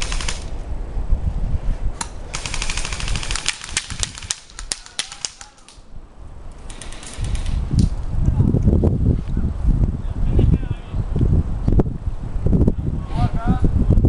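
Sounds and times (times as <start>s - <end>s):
airsoft guns firing: 0.0s - 0.5s, 2.3s - 5.8s, 6.7s - 7.6s.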